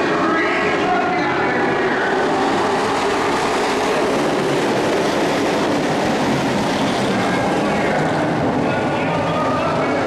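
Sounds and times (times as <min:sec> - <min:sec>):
race truck engines droning: 0:00.0 - 0:10.0.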